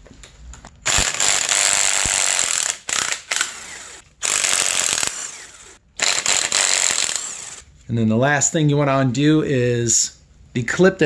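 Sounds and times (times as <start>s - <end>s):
impact wrench hammering: 0.9s - 7.6s.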